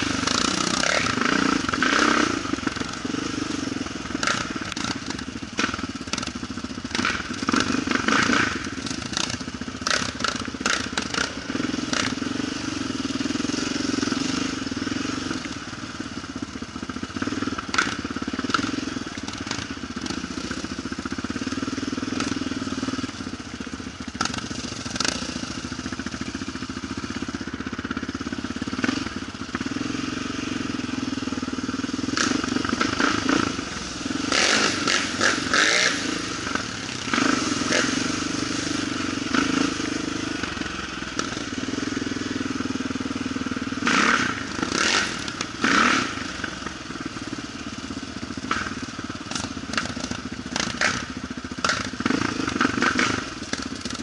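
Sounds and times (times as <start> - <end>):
quad engine running: 0.0 - 54.0
sharp clicks and knocks: 17.7 - 18.6, 48.5 - 51.0, 51.6 - 54.0.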